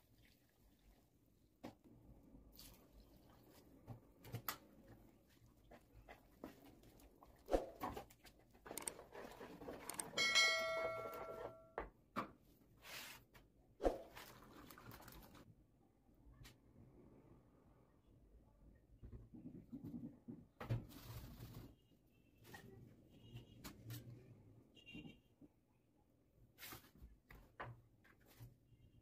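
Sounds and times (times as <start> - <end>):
brief ringing tone: 10.2 - 11.7.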